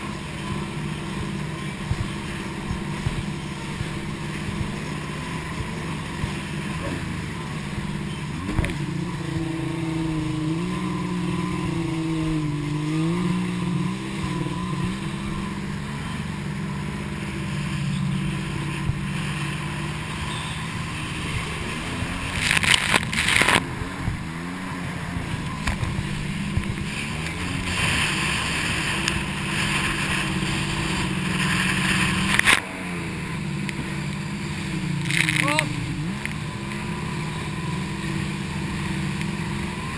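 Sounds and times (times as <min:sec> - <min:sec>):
jet ski engine: 0:00.0 - 0:39.9
water crashing: 0:00.0 - 0:39.9
spray and wind hiss: 0:25.8 - 0:35.1.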